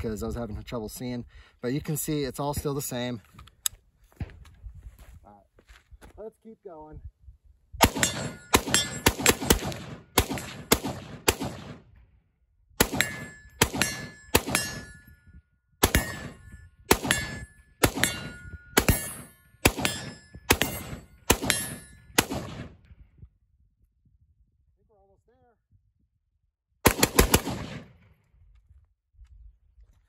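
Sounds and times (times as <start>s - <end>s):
rifle gunshots: 7.8s - 12.0s, 12.8s - 14.9s, 15.8s - 22.8s, 26.8s - 28.0s
steel target ringing: 7.9s - 9.3s, 12.9s - 15.2s, 15.9s - 22.2s.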